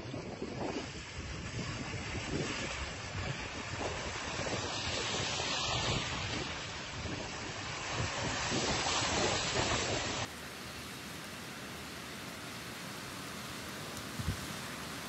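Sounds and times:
wind buffeting microphone: 0.0s - 10.3s, 13.8s - 15.0s
even hiss: 8.0s - 15.0s
cars splashing through flood water: 8.7s - 15.0s.

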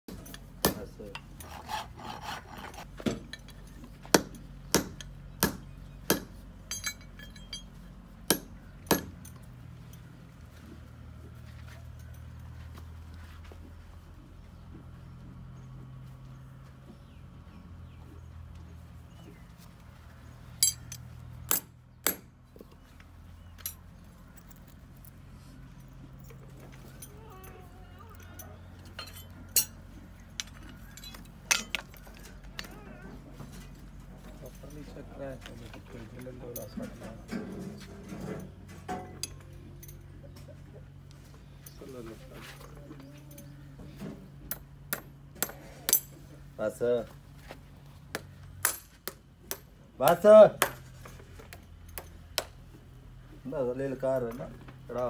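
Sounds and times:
steel tools clinking: 0.1s - 1.7s, 2.5s - 5.2s, 6.6s - 7.9s, 20.6s - 21.7s, 23.4s - 32.8s, 35.7s - 40.3s
metallic clinking: 6.6s - 7.9s, 20.6s - 22.2s, 25.8s - 32.7s
hammer striking metal: 8.3s - 9.3s, 20.6s - 22.3s, 48.1s - 50.8s.

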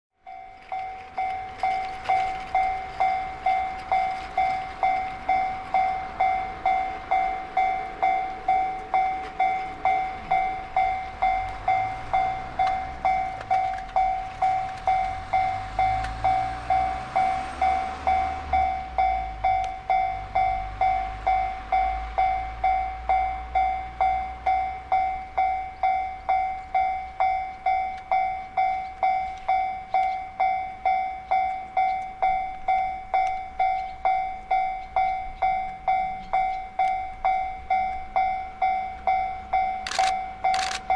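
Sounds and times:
freight train rumble: 0.2s - 40.9s
level crossing warning bell ringing: 0.2s - 40.9s.

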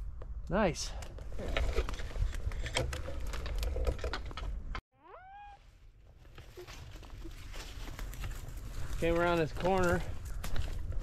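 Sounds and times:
rising whine-like animal call: 5.0s - 5.6s
footsteps through grass: 5.6s - 11.0s
wind rumbling on microphone: 7.0s - 11.0s.

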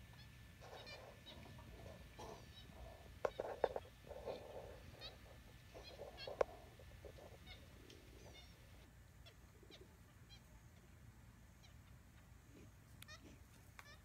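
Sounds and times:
monkeys chirping: 0.6s - 10.5s.

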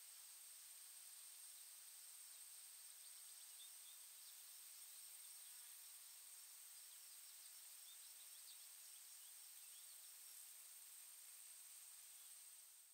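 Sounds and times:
faint bird chirps: 2.3s - 10.5s.

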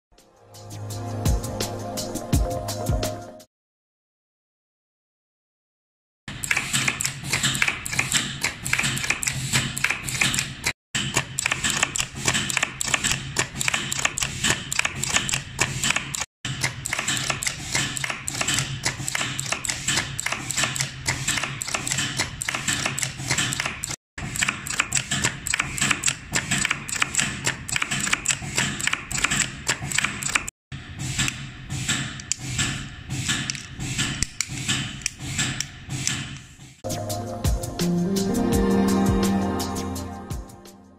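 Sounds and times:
rapid clicking and clatter: 6.4s - 30.5s.

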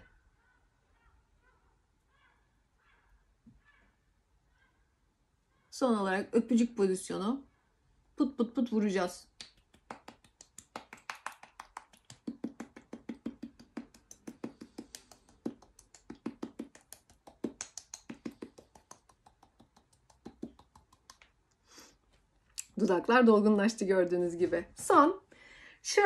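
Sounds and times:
fingertips patting on lips: 9.2s - 21.7s.

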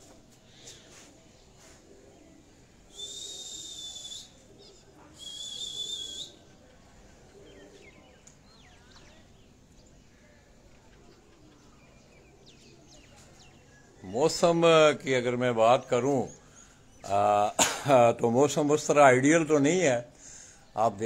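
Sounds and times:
faint bird chirps: 0.4s - 17.6s
high-pitched whistles: 2.9s - 4.4s, 5.2s - 6.5s.

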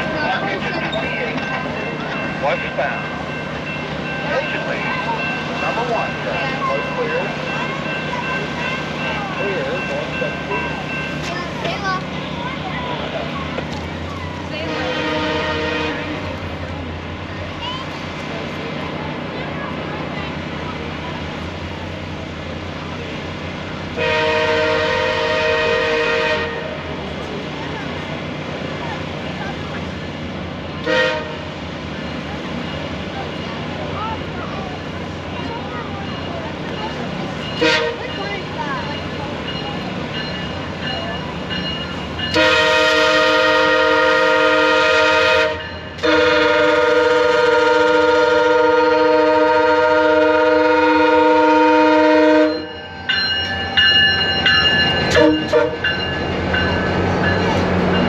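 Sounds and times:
low rumble of approaching train: 0.0s - 58.0s
locomotive air horn blast: 14.6s - 16.4s, 24.0s - 26.8s, 30.8s - 31.5s, 37.6s - 38.0s, 42.3s - 52.7s, 55.1s - 55.8s.

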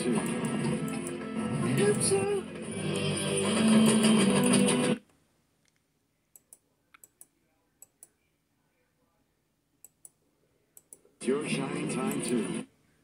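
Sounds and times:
music: 0.0s - 5.0s.

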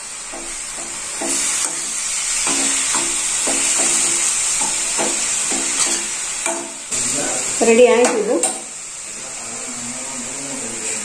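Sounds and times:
food sizzling in a pan: 0.0s - 11.0s
spatula scraping a pan: 0.3s - 6.6s.

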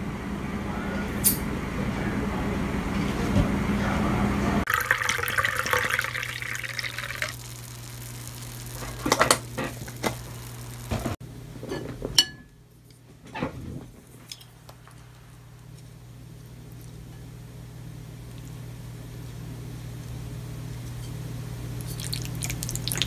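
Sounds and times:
low hum: 3.8s - 11.2s
drink pouring into a glass: 4.7s - 8.1s, 21.8s - 23.0s.

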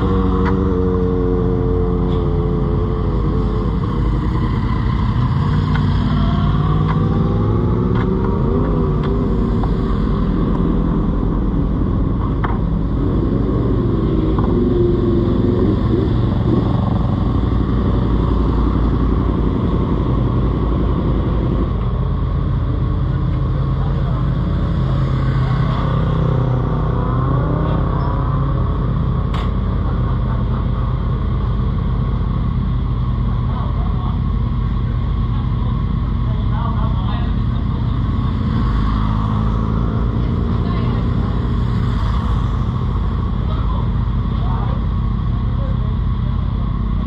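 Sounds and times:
motorcycles revving: 0.0s - 47.0s.

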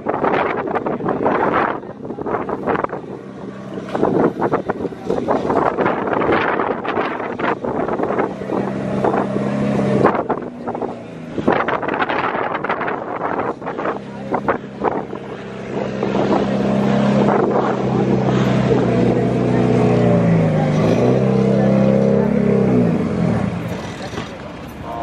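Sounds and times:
engine running steadily: 0.0s - 25.0s
wind buffeting microphone: 0.0s - 25.0s.

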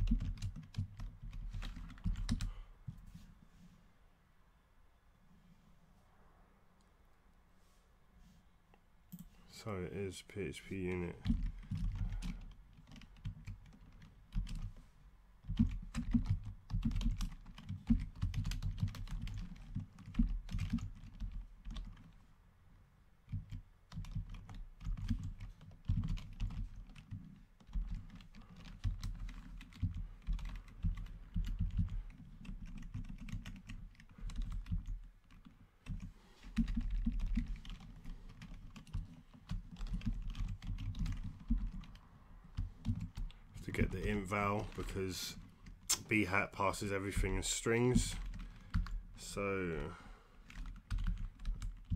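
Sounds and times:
typing on computer keyboard: 0.0s - 2.5s, 11.2s - 14.7s, 15.4s - 22.2s, 23.2s - 43.4s, 48.0s - 49.0s, 50.4s - 51.9s.

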